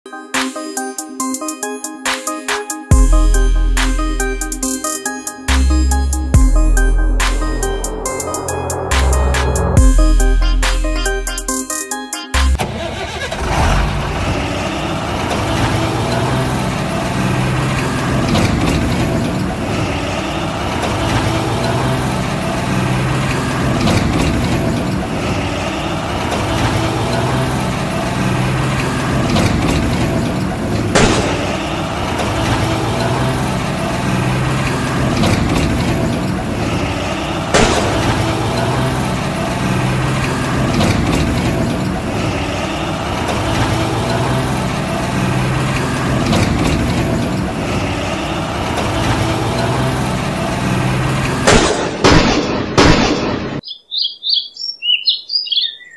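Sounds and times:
diesel truck engine running: 2.9s - 52.3s.

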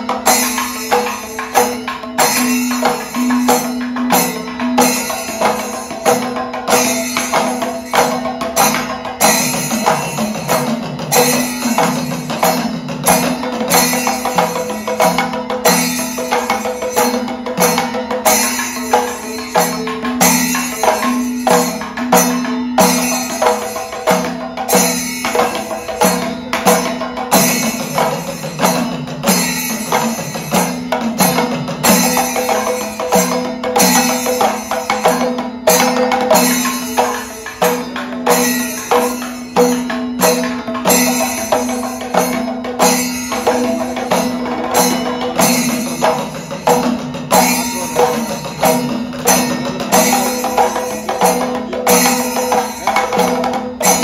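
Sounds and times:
hand drums in dense rhythm: 0.0s - 54.0s.

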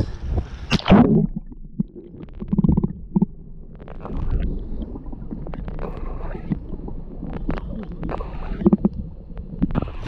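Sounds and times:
underwater clicks and knocks: 0.7s - 4.5s, 5.4s - 10.0s
muffled underwater gurgling: 0.8s - 10.0s.

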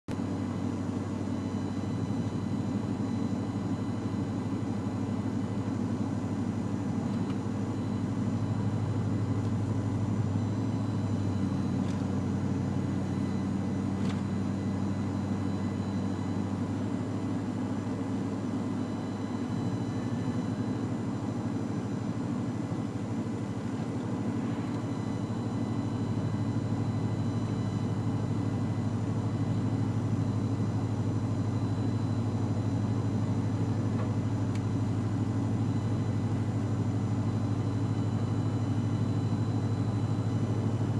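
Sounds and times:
low engine drone: 0.1s - 40.9s.

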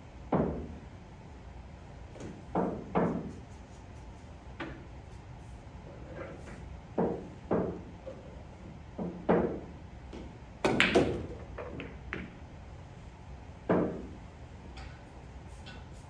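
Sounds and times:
pool balls clacking: 6.1s - 12.4s, 13.7s - 14.1s
cue striking ball: 9.0s - 12.4s.

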